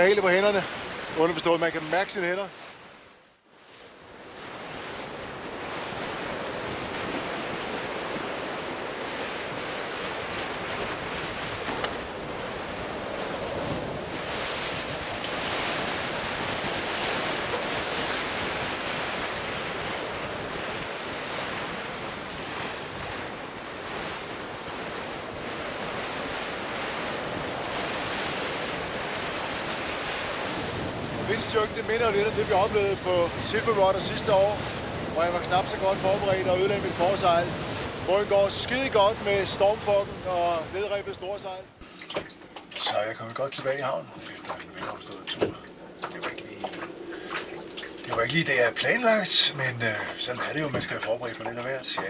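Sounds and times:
water splashing along hull: 0:00.0 - 0:52.0
wind buffeting microphone: 0:04.5 - 0:41.4.

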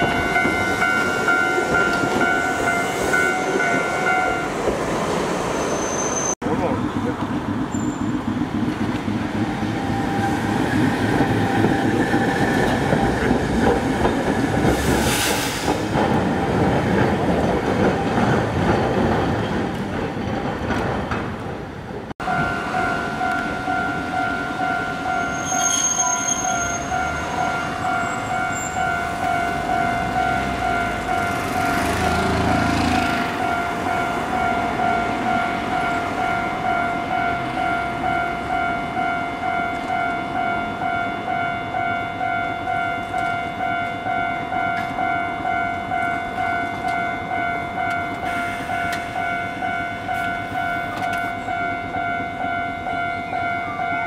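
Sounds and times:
level crossing alarm dinging: 0:00.0 - 0:04.6, 0:22.2 - 0:54.0
tram rumbling: 0:00.0 - 0:54.0.

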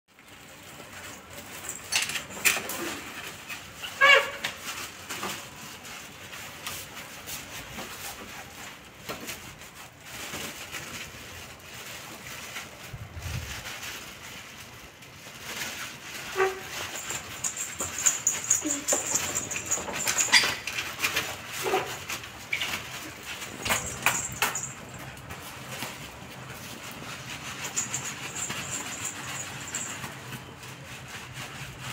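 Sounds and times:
dog whining: 0:16.4 - 0:20.8
wet cloth rubbing fur: 0:21.3 - 0:31.9.

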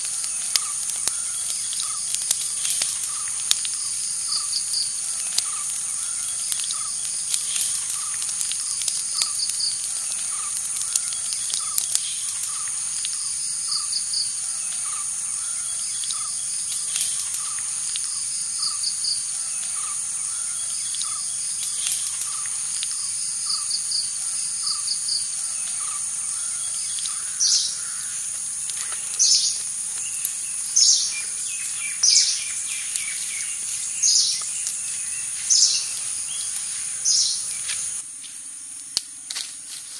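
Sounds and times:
small chirps: 0:00.0 - 0:39.9
bird calling: 0:24.6 - 0:38.0.

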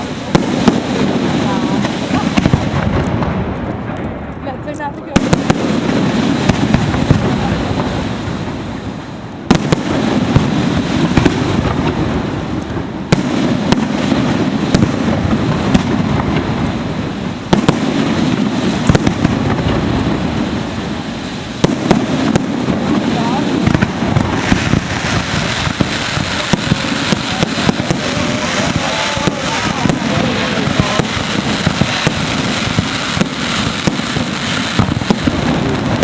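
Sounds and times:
firework shells bursting: 0:09.4 - 0:36.0.

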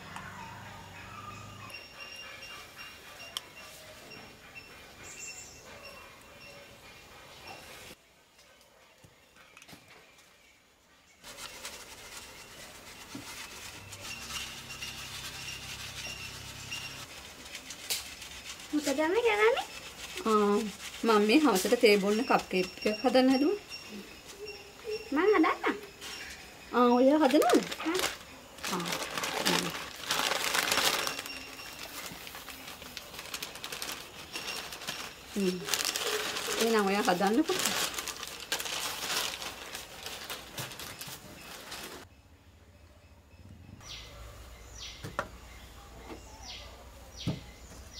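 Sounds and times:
sheet rustling and crinkling: 0:11.2 - 0:23.4, 0:27.0 - 0:42.1.

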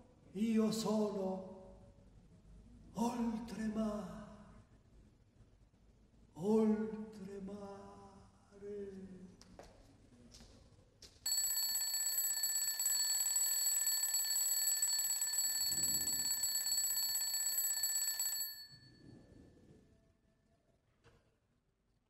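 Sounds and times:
alarm clock ringing: 0:11.3 - 0:19.0.

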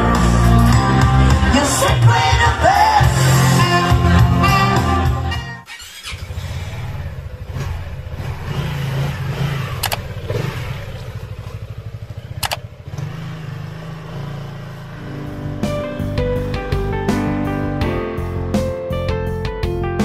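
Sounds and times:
motor scooter engine running: 0:05.7 - 0:16.8
sharp clicks: 0:09.8 - 0:10.1, 0:12.4 - 0:13.1.

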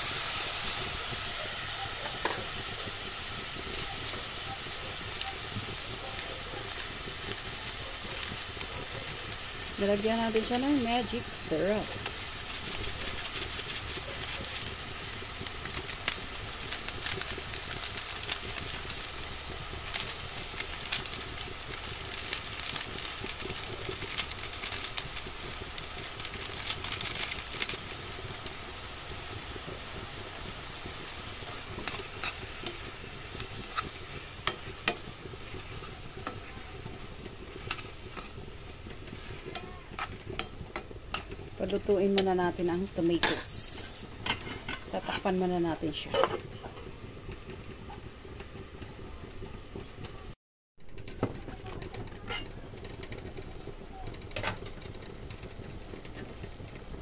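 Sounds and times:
vegetables sizzling in a frying pan: 0:00.0 - 0:57.0
spatula scraping and tapping pan: 0:44.2 - 0:45.4, 0:50.9 - 0:53.4.

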